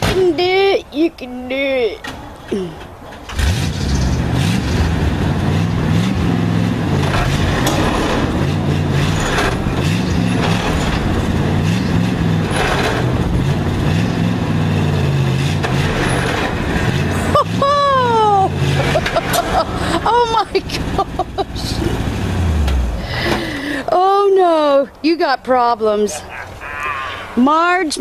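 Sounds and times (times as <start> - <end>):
truck engine running hard: 3.3 - 24.2.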